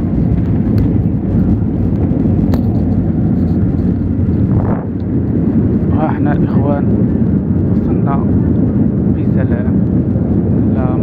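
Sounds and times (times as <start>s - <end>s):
airplane engine and wheels rumble: 0.0s - 11.0s.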